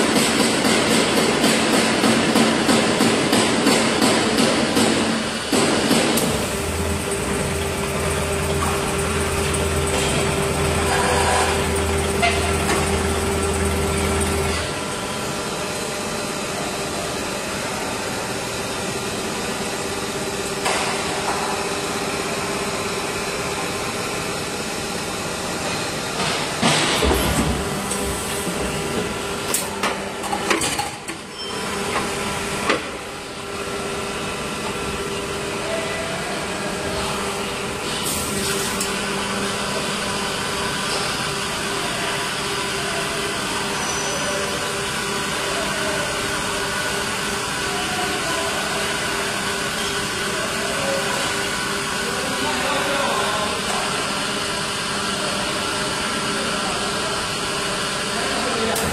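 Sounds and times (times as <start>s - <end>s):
machine knocks and hisses: 0.0s - 6.6s, 26.2s - 29.1s
hydraulic pump humming: 0.0s - 58.9s.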